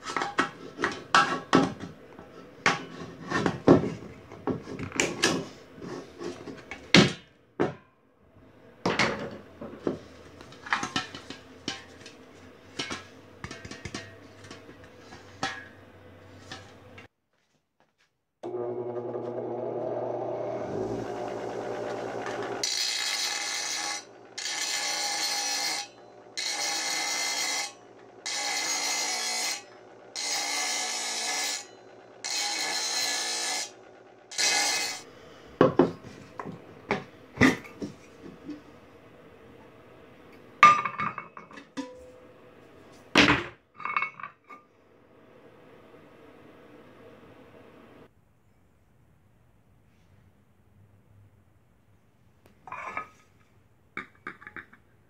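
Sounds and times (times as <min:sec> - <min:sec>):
bench grinder motor running: 0:18.4 - 0:35.0.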